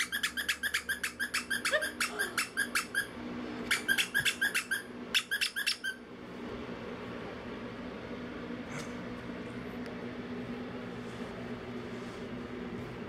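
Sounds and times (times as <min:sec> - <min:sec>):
puppy yipping: 0:00.0 - 0:06.0.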